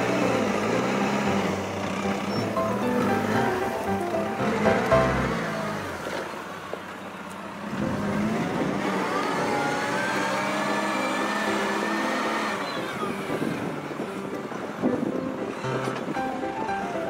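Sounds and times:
vehicle engine revving: 0:00.0 - 0:06.7, 0:07.5 - 0:13.8.

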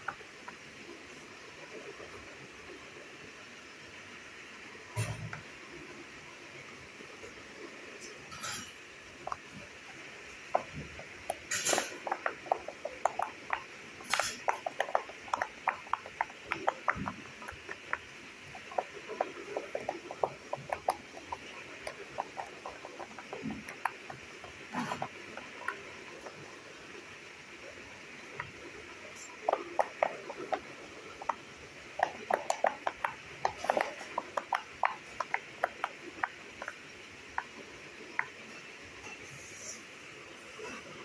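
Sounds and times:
fidget toy bubbles popping: 0:00.0 - 0:00.7, 0:09.2 - 0:38.5.

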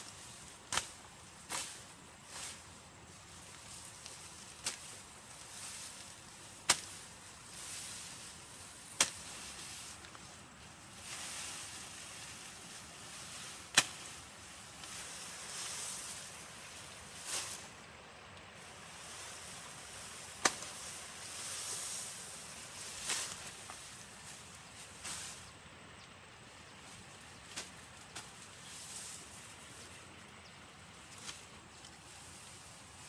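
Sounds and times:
grass rustling: 0:00.0 - 0:33.0
machete chopping grass: 0:00.6 - 0:01.8, 0:04.6 - 0:04.9, 0:06.6 - 0:07.0, 0:08.9 - 0:09.6, 0:13.6 - 0:14.2, 0:20.4 - 0:20.9.

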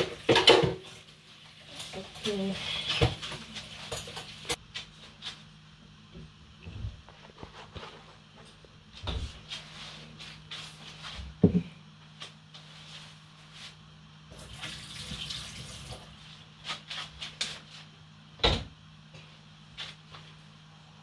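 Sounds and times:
cookware clatter: 0:00.0 - 0:00.8
tap water filling a pot: 0:14.4 - 0:16.0.

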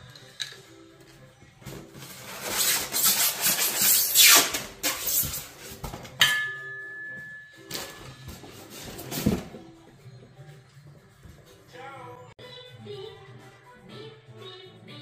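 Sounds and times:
foam packaging rubbing and scraping: 0:01.9 - 0:05.9, 0:08.4 - 0:09.5.

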